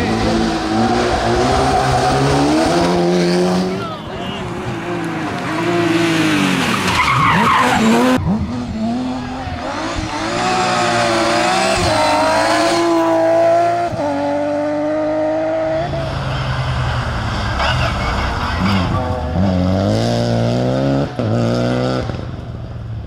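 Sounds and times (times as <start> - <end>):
car engine revving hard: 4.8 - 16.0.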